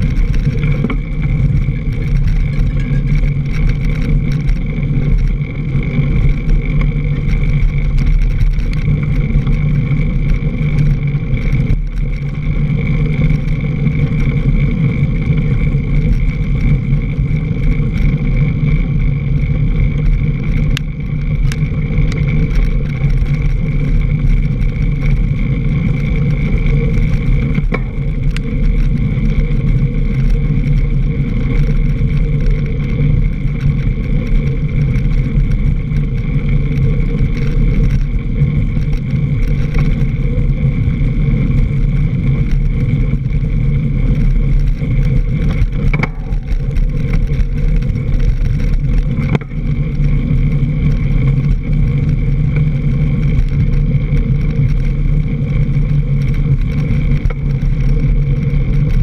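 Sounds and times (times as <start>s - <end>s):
bike tyre rolling over dirt trail: 0.0s - 59.0s.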